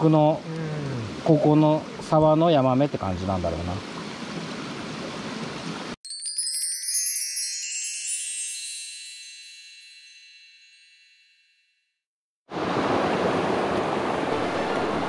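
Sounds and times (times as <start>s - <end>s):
stream water rushing: 0.0s - 6.0s, 12.5s - 15.0s
tinkling wind chimes: 6.0s - 11.9s.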